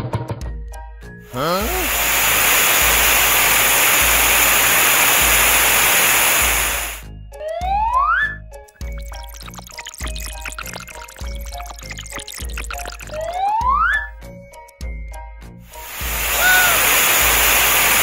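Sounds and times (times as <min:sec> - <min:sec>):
water spraying: 0:01.3 - 0:07.0, 0:08.8 - 0:13.6, 0:15.7 - 0:18.0
short rising whistle tone: 0:16.0 - 0:17.8.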